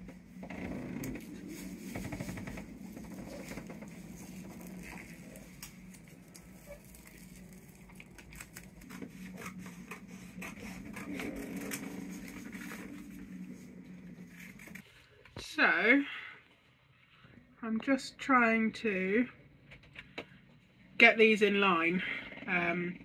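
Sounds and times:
faint low hum: 0.0s - 23.0s
paper rustling and crinkling: 1.2s - 13.7s.

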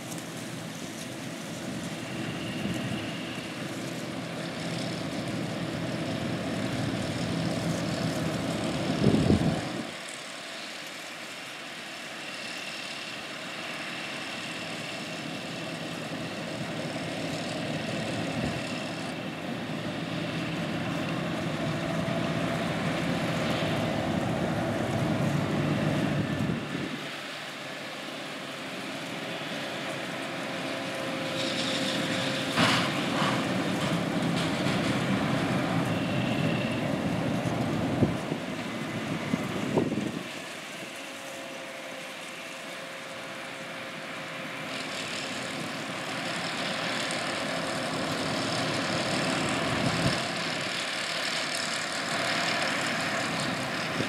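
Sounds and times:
tractor diesel engines running: 0.0s - 54.0s.

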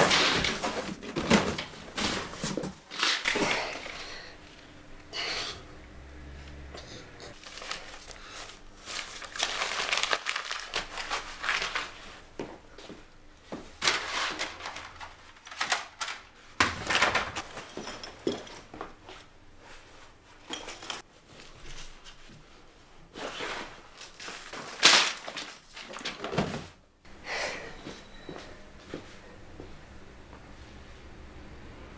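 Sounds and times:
paper rustling and crinkling: 7.4s - 12.3s, 13.8s - 17.5s, 23.1s - 26.8s.

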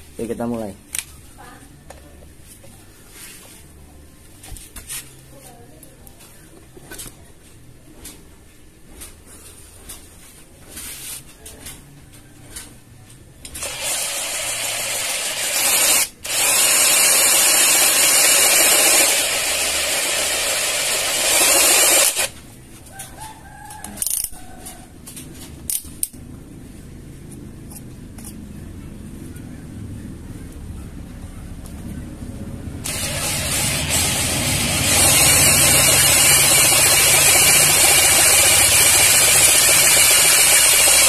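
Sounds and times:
cordless drill drilling into steel: 13.6s - 22.3s, 32.8s - 41.0s
drill clicks: 13.6s - 22.3s, 32.8s - 41.0s.

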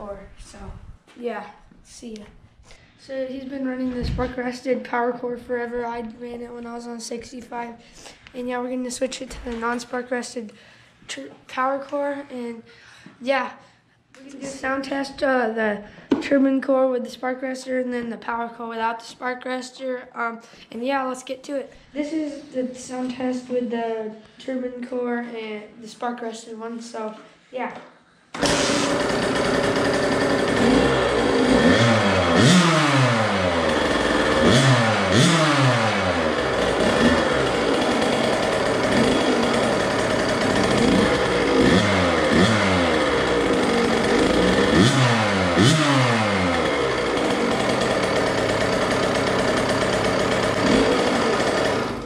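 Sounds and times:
two-stroke engine revving: 28.4s - 52.0s.

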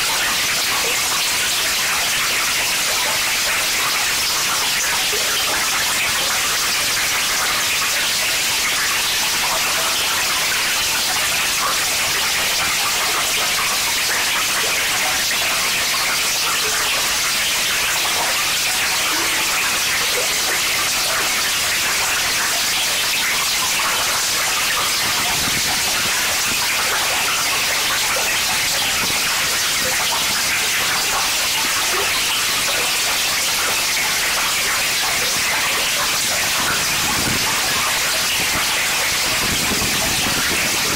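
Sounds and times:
loud static noise wall: 17.8s - 40.9s.

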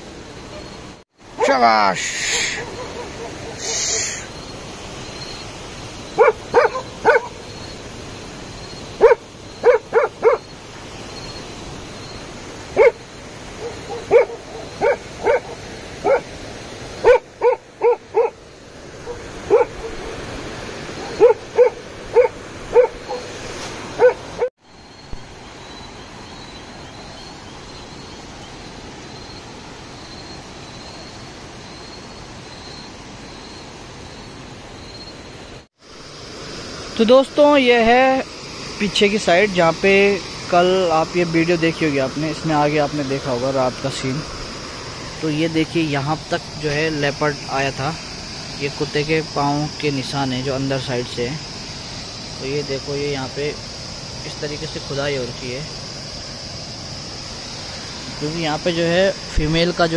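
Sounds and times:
steady hiss: 0.0s - 59.9s
dogs barking: 1.3s - 4.3s, 6.1s - 7.5s, 9.0s - 10.5s, 12.7s - 16.4s, 17.0s - 18.4s, 19.0s - 20.3s, 20.9s - 24.5s.

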